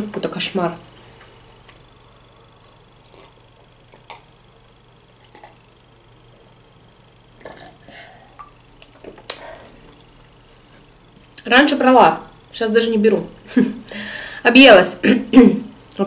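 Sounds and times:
person swallowing gulps: 7.4s - 9.6s.

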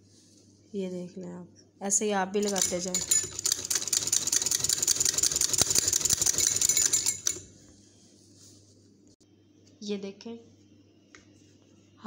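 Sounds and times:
sewing machine stitching: 2.4s - 7.5s.

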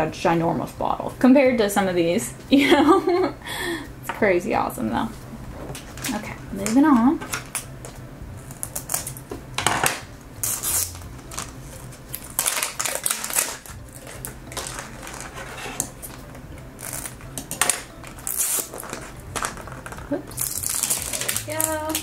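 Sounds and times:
wrapper tearing and rustling: 8.4s - 9.2s, 9.8s - 16.2s, 16.8s - 22.0s.

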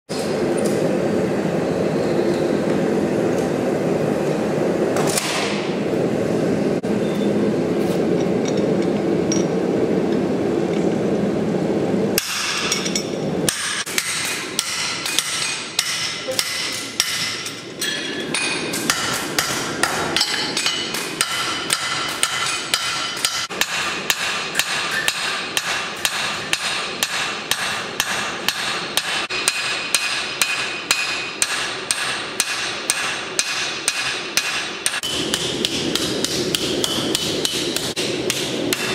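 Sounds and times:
hammer striking steel on anvil: 12.2s - 38.9s.

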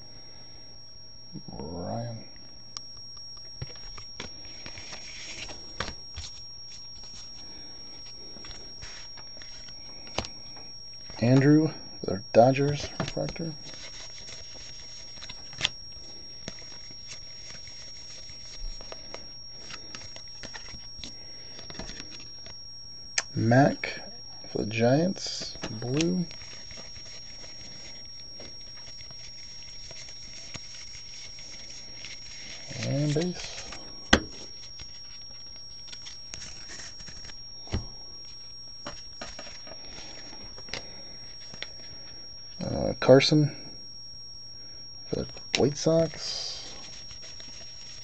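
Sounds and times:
trading cards clicking and rustling: 25.4s - 37.8s.

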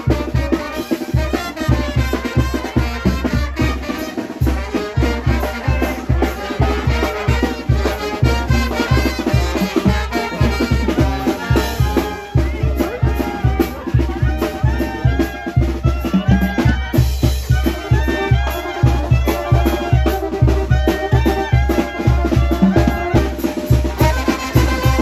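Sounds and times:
brass band playing: 0.0s - 25.0s
quick bass drum beat: 0.0s - 25.0s.

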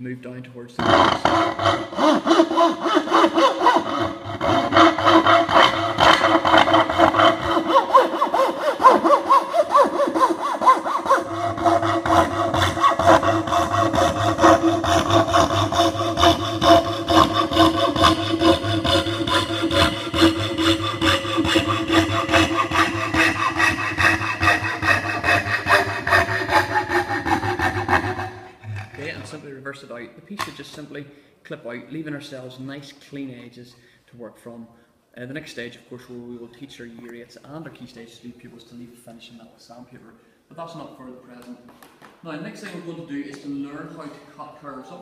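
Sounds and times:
saw cutting plywood: 0.8s - 29.4s.

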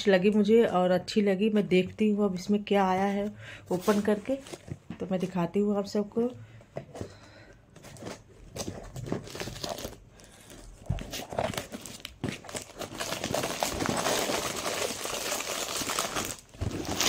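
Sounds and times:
packaging crinkling: 8.0s - 17.0s
cardboard ripping: 10.9s - 17.0s.

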